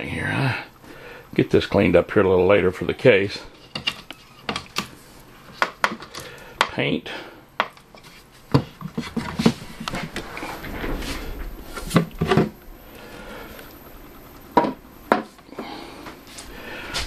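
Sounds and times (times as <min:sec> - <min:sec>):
handling noise: 0:07.7 - 0:17.0.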